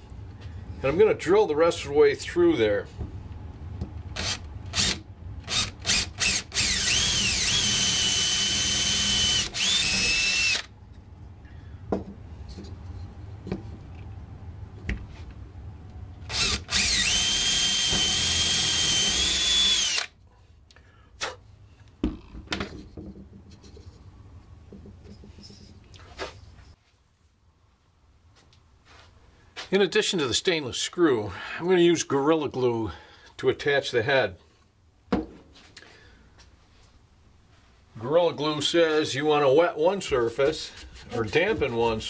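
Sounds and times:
cordless drill whining: 4.2 - 10.7, 16.3 - 20.1
drill trigger pulls: 4.2 - 10.7, 16.3 - 20.1.

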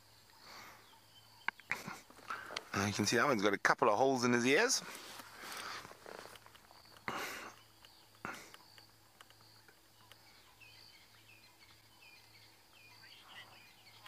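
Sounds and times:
bird chirps: 0.0 - 3.4, 4.9 - 14.0
insect drone: 0.0 - 14.0
rustling: 4.8 - 7.1.

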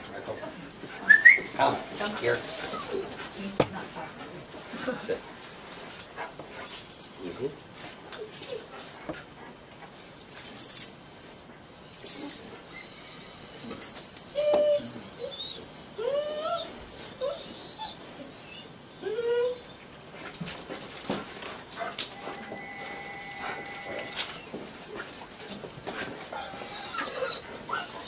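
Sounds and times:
dog whining: 1.0 - 3.6, 7.9 - 8.9, 11.7 - 20.4, 21.4 - 28.0
rustling: 20.0 - 28.0.

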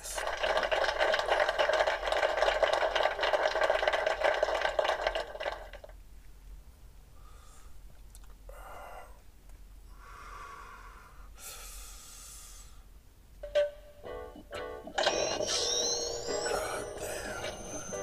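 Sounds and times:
breathing in and out: 7.1 - 7.9, 8.5 - 9.2, 9.9 - 13.0
long breathy exhale: 7.2 - 7.8, 10.0 - 12.9
person inhaling smoke hissing: 7.2 - 7.8, 10.0 - 12.9.

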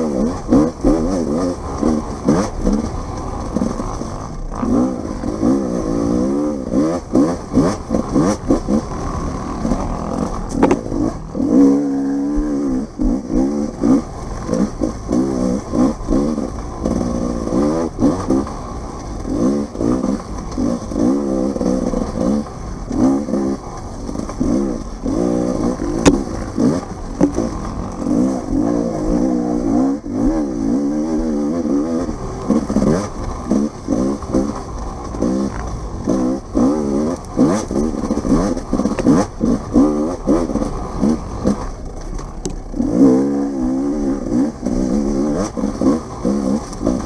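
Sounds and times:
dirt bike engine revving: 0.0 - 47.0.

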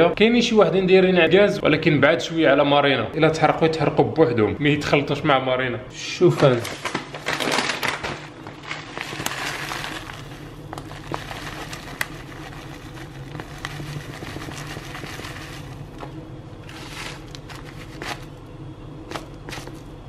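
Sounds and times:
plastic bag crinkling: 6.4 - 18.4, 19.1 - 20.0
oats pouring into bowl: 8.6 - 16.0, 16.6 - 18.3.

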